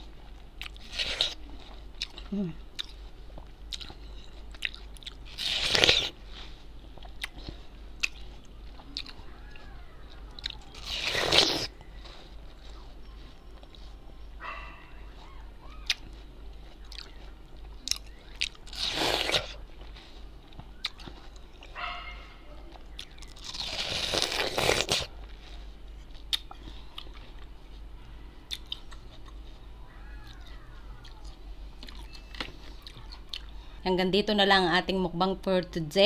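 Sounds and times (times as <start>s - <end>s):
crunching bites into watermelon: 0.6s - 3.0s, 3.7s - 6.2s, 7.0s - 11.8s, 17.8s - 19.6s, 22.8s - 25.2s
chewing and wet mouth clicks: 2.8s - 5.2s, 7.0s - 10.8s, 15.8s - 16.2s, 16.8s - 19.4s, 22.7s - 23.4s, 26.1s - 27.5s, 28.5s - 29.4s.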